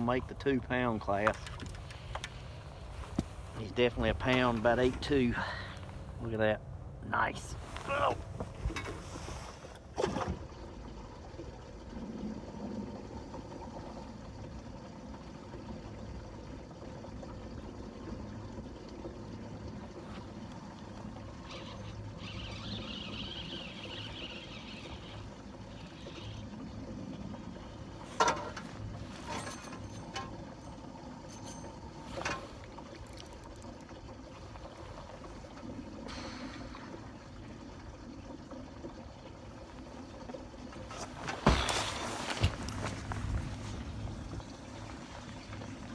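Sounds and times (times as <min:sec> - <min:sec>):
water lapping on a boat: 0:00.0 - 0:45.9.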